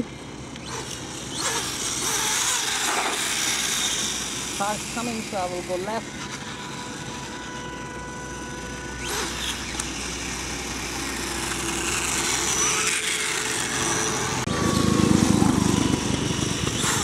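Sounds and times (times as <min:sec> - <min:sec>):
electric motor whining: 0:00.0 - 0:17.0
road traffic: 0:00.0 - 0:17.0
motor scooter engine rumble: 0:03.9 - 0:17.0.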